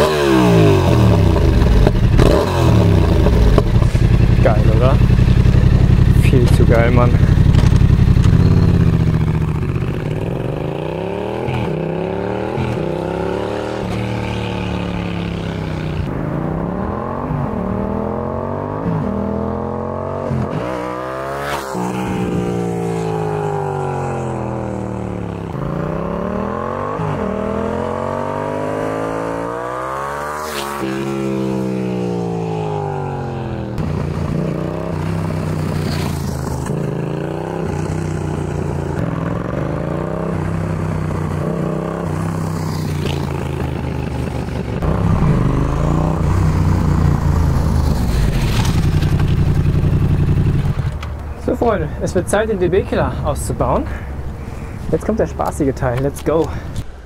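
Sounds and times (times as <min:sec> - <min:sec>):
motorcycle engine accelerating: 0:00.0 - 0:56.4.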